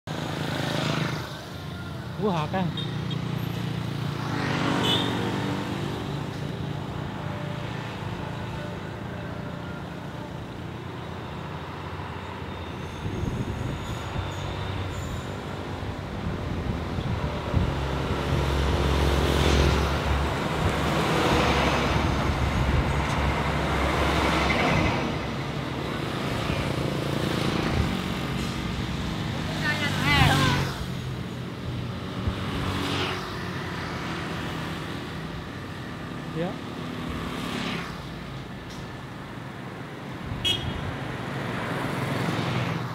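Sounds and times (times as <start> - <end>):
motorcycles passing: 0.1 - 42.9.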